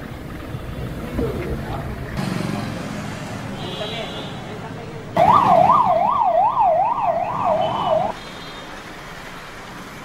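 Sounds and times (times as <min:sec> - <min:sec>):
electronic siren sweeping: 0:05.2 - 0:08.1.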